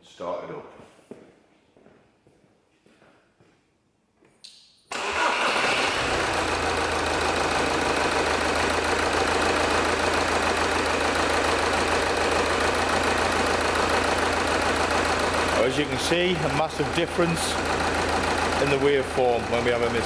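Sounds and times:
misfiring diesel engine idling: 5.0 - 20.0.

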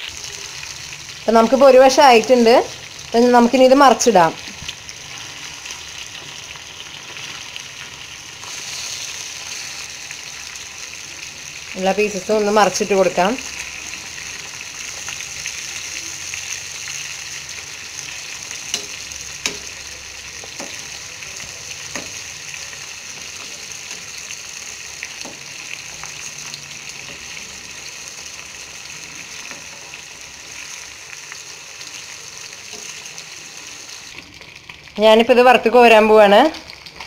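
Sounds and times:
chicken sizzling in oil: 0.0 - 37.0
spoon clicking against pan: 18.7 - 19.8.

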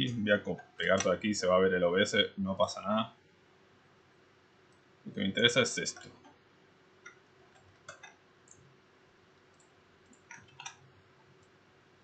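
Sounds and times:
computer mouse clicks: 7.0 - 8.7, 9.5 - 10.8.

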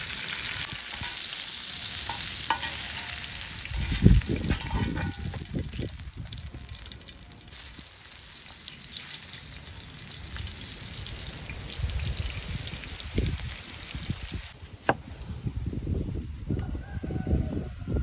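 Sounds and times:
hot oil sizzling in a pan: 0.0 - 14.6.

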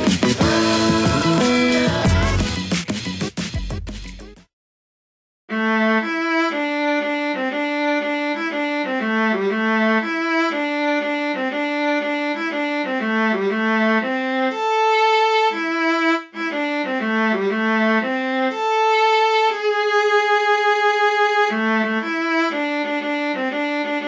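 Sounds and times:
solo viola melody: 5.5 - 24.0.

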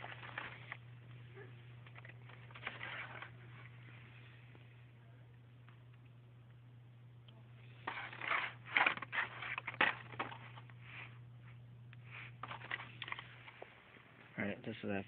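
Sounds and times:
plastic packs rustling and clicking: 0.0 - 0.9, 1.8 - 3.7, 7.8 - 10.8, 12.4 - 13.7
steady low hum: 0.0 - 15.0.

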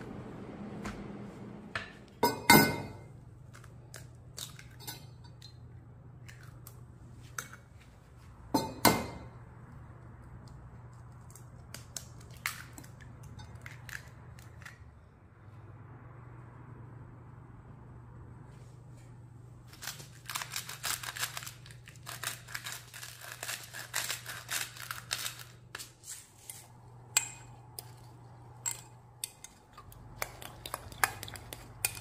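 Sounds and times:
faint low hum: 0.0 - 32.0
eggs cracking against glass jug: 27.1 - 32.0.

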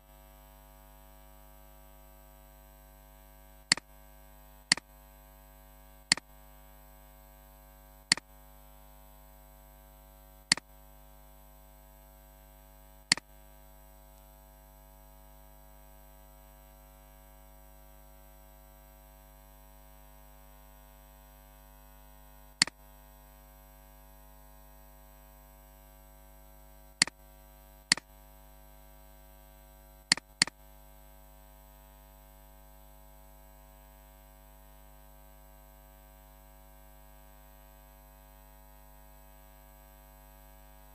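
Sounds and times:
steady electrical hum: 0.0 - 40.9
computer mouse clicking: 30.1 - 30.6.

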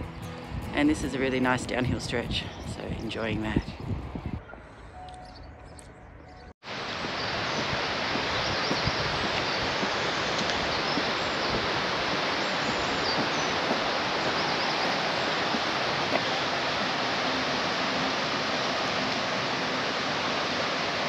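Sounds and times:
small birds chirping faintly: 4.3 - 16.6
stream water rushing: 6.6 - 21.0.

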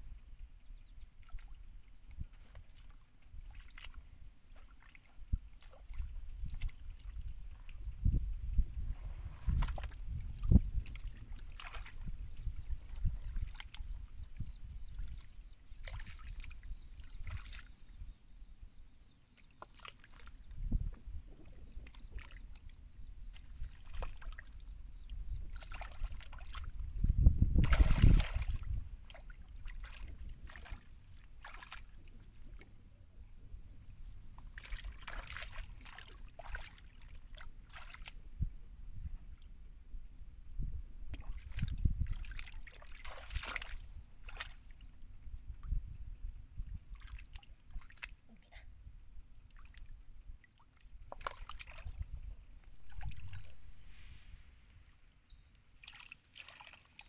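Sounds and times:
hands splashing in muddy water: 2.3 - 8.0, 9.0 - 14.0, 15.8 - 17.8, 19.6 - 20.3, 25.5 - 26.8, 27.5 - 32.0, 34.3 - 38.2, 41.1 - 44.8, 46.9 - 48.3, 49.5 - 54.1, 55.8 - 57.0.

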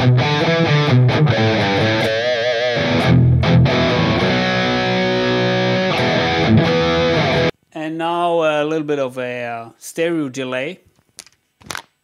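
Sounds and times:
distorted electric guitar: 0.0 - 7.5.

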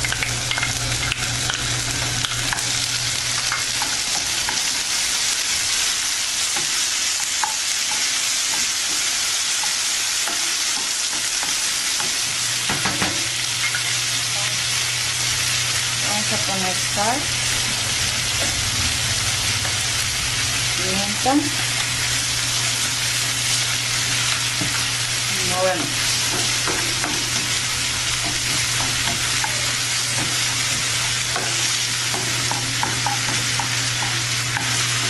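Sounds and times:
vegetables sizzling in oil: 0.0 - 35.0
low hum: 13.6 - 32.4.

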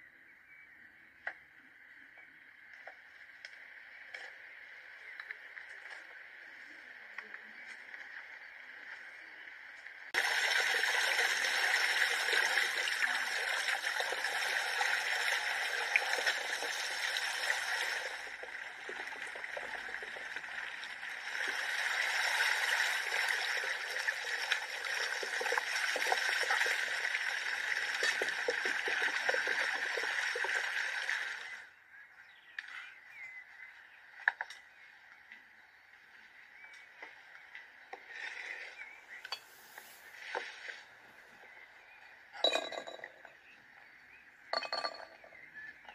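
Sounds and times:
hose water splashing on stone: 10.1 - 31.6.

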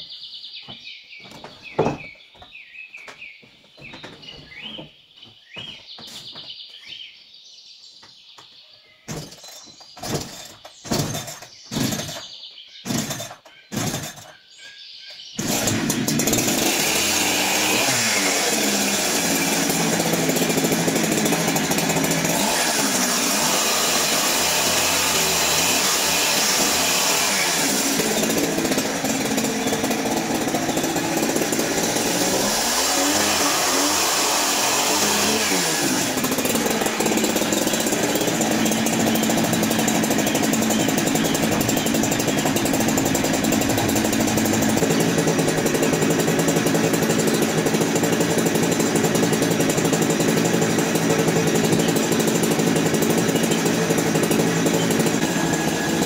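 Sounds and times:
birds chirping: 0.0 - 16.3, 27.6 - 33.9, 35.9 - 47.8
sharp knocks: 0.7 - 2.2, 9.1 - 12.3
loud power tool running: 10.0 - 12.2, 12.9 - 14.3, 15.4 - 56.0.

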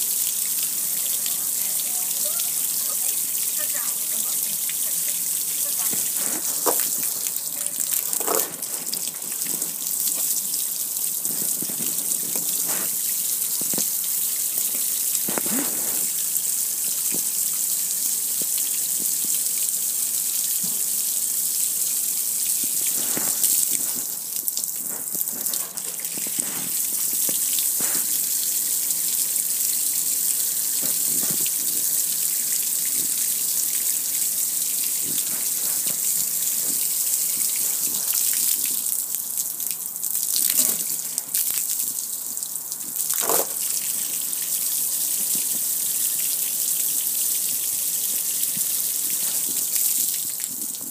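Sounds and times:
water spraying on metal grill: 0.0 - 39.0, 40.2 - 50.9
sharp water splashes: 43.0 - 44.7.

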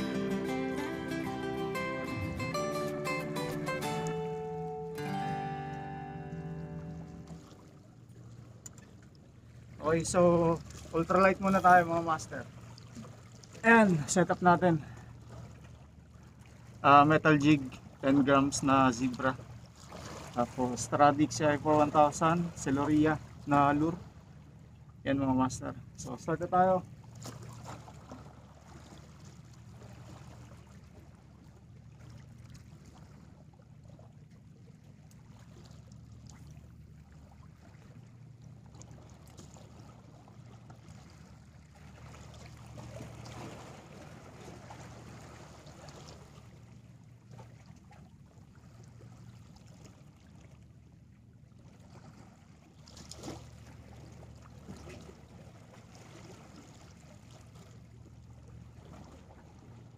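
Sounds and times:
low steady rumble: 0.0 - 59.9
waves lapping against rocks: 6.9 - 24.5, 26.0 - 50.6, 51.3 - 59.9.

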